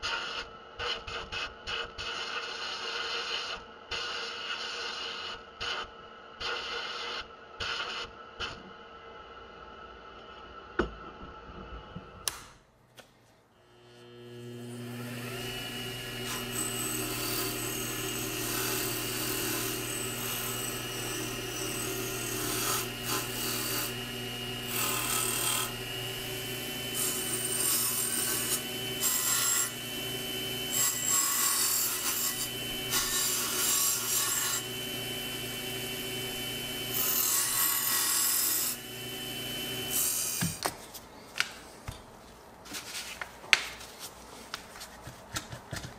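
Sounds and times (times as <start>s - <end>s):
lathe motor humming: 13.7s - 40.0s.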